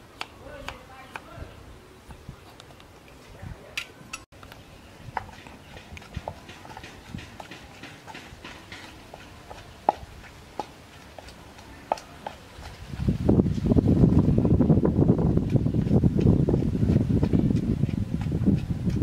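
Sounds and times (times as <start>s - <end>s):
wooden pestle pounding in mortar: 5.1s - 13.1s.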